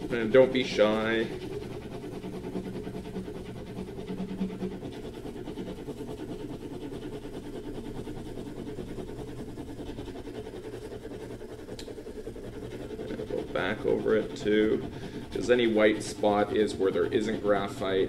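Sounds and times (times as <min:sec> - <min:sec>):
pencil scribbling on paper: 0:00.0 - 0:18.0.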